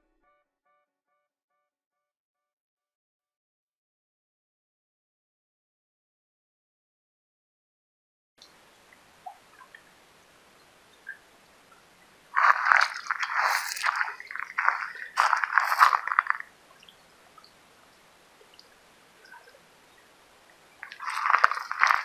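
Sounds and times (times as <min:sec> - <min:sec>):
water gurgling and splashing: 0:08.8 - 0:22.0.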